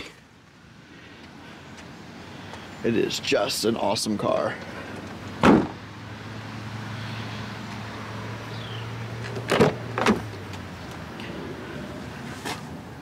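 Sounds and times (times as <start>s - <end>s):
sharp knocks: 5.4s - 5.8s.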